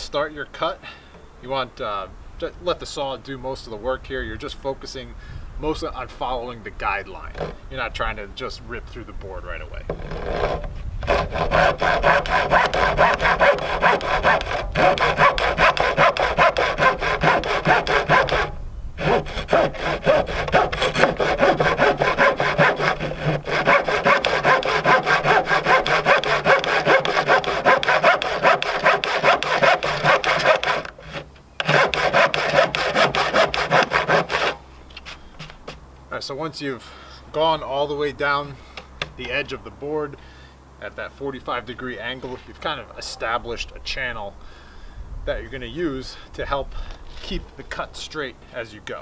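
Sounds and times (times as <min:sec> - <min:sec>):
hand saw cutting wood: 0:07.2 - 0:07.6, 0:09.9 - 0:35.8.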